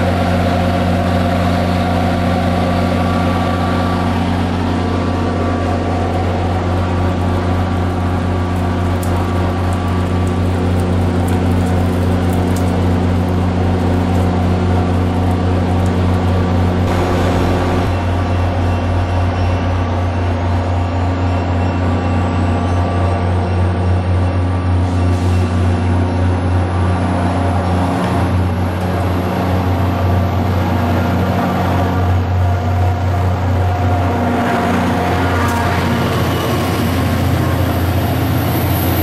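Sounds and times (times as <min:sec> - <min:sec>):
diesel locomotive idling: 0:00.0 - 0:11.6, 0:14.4 - 0:39.0
thin high whine: 0:16.8 - 0:22.2.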